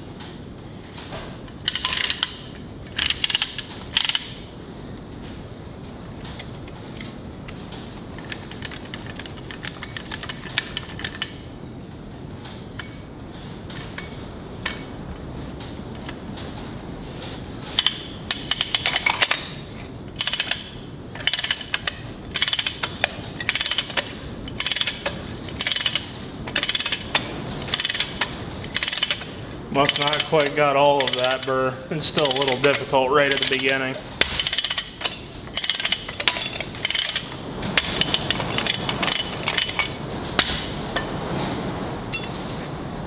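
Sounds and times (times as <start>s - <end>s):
ratchet wrench clicking: 1.7s - 2.4s, 3.0s - 4.3s, 17.8s - 19.4s, 20.2s - 31.5s, 33.3s - 39.9s.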